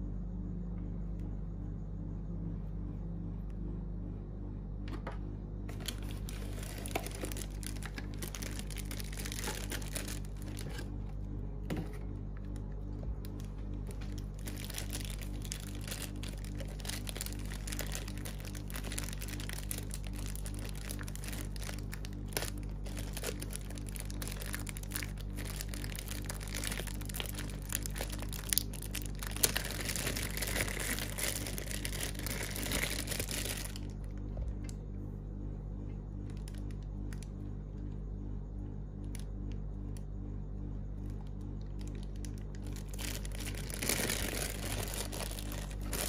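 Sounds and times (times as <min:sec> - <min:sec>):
air conditioner hum: 0:00.0 - 0:46.0
plastic bag crinkling: 0:05.7 - 0:11.0, 0:13.2 - 0:34.3, 0:36.3 - 0:37.2, 0:41.8 - 0:46.0.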